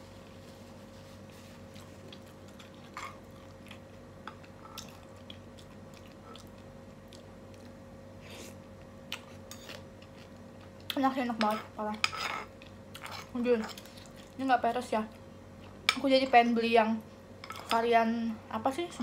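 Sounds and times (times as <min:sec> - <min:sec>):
steady low hum: 0:00.0 - 0:19.0
person chewing: 0:01.6 - 0:11.0.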